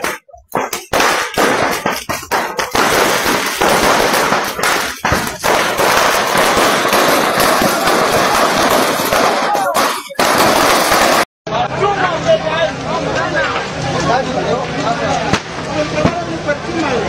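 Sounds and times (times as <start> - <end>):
firecrackers crackling: 0.0 - 11.3, 15.1 - 17.0
sharp firework bangs: 0.0 - 11.3, 15.3 - 16.3.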